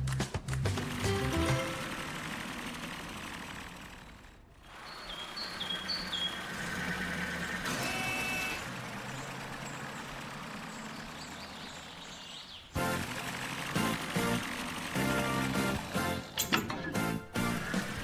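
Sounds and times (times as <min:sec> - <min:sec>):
cartoon truck engine running: 0:00.0 - 0:18.0
birds chirping: 0:04.0 - 0:13.1.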